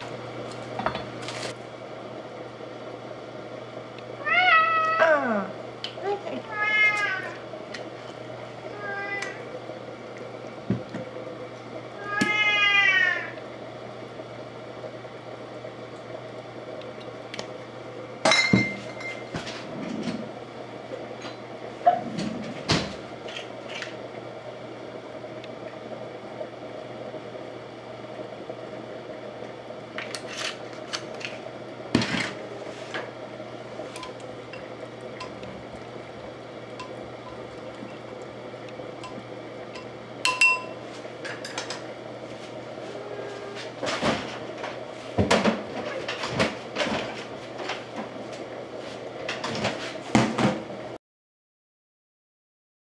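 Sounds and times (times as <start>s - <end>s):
steady low hum: 0.0s - 51.0s
cat meowing: 4.2s - 5.3s, 6.5s - 7.4s, 8.7s - 9.4s, 12.0s - 13.3s
jar and utensils clinking on steel: 39.8s - 40.8s.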